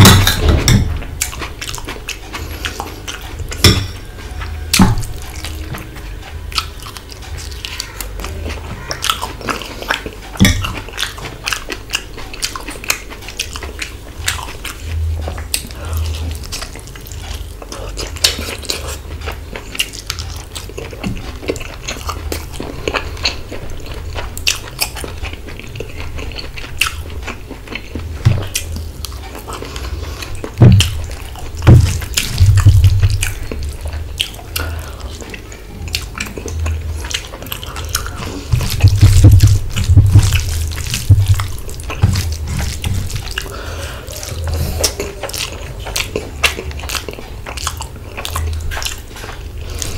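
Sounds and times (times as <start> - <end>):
wet chewing: 0.0 - 49.9
low thuds: 30.5 - 33.6, 38.3 - 43.4.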